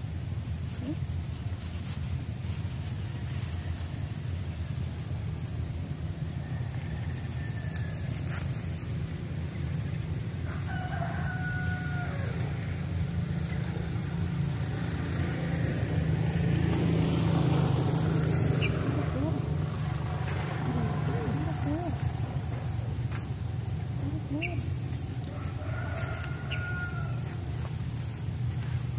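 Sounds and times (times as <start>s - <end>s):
rooster crowing: 6.4s - 8.3s, 10.4s - 12.8s, 24.3s - 28.8s.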